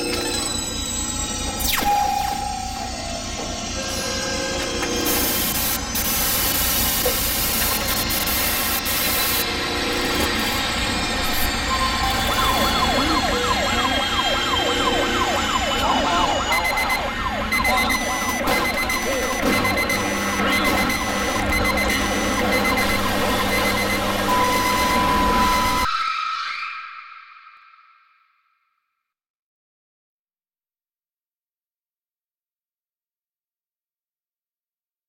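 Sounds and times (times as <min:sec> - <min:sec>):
warbling siren-like wail: 0:00.0 - 0:28.0.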